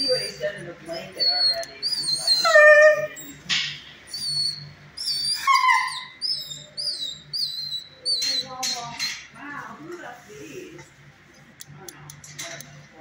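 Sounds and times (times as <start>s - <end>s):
dog whimpering: 0.0s - 3.5s, 4.1s - 8.6s.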